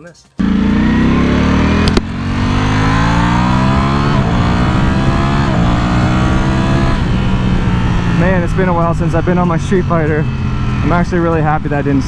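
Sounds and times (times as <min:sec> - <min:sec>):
motorcycle engine accelerating: 0:00.4 - 0:12.0
sharp click: 0:01.8 - 0:02.1.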